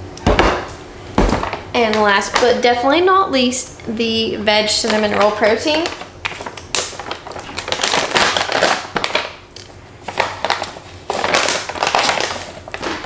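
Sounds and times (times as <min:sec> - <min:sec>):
packaging crinkling and rustling: 0:04.7 - 0:13.0.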